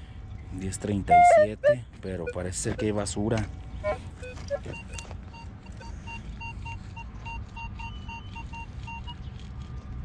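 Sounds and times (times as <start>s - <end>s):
metal detector short beeps: 1.1s - 3.0s, 3.8s - 9.2s.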